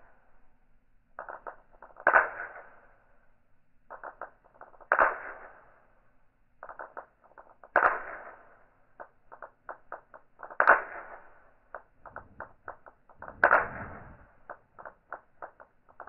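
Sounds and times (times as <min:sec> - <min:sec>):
small quick clicks of balls: 0:01.1 - 0:03.2, 0:03.8 - 0:16.0
steel balls clacking: 0:06.6 - 0:16.0.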